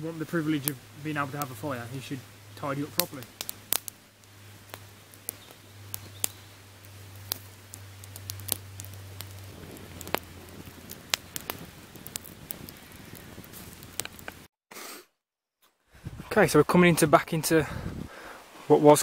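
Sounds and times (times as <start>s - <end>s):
campfire crackling and popping: 0.0s - 14.5s.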